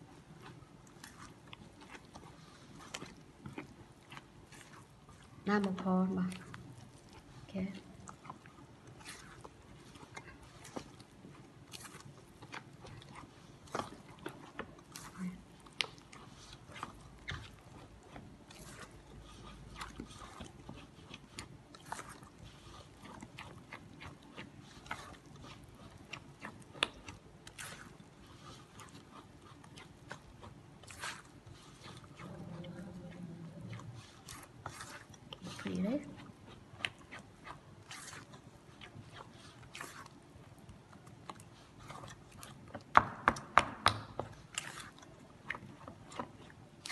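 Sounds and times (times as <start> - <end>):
hand squelching batter in bowl: 0.0 - 46.9
fingers clicking in dough: 34.3 - 46.9.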